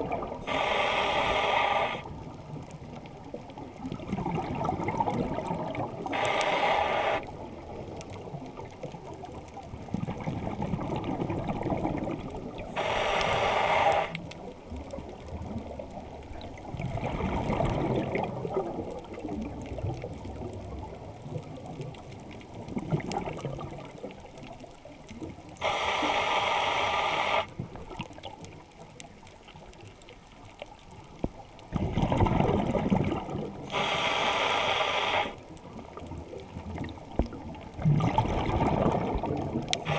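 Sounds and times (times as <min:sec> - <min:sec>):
bubbling exhaust rumble: 0:00.0 - 0:00.5, 0:31.7 - 0:33.7, 0:37.6 - 0:39.8
diver breathing through regulator: 0:00.4 - 0:02.1, 0:06.0 - 0:07.3, 0:12.7 - 0:14.2, 0:25.6 - 0:27.5, 0:33.7 - 0:35.4.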